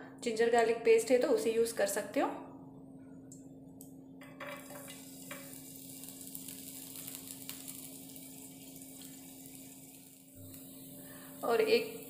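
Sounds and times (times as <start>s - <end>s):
food sizzling in hot oil: 4.4s - 12.0s.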